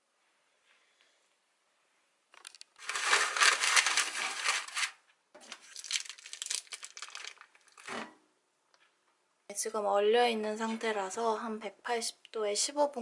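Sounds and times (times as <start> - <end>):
plastic packaging crinkling: 2.4 - 8.0.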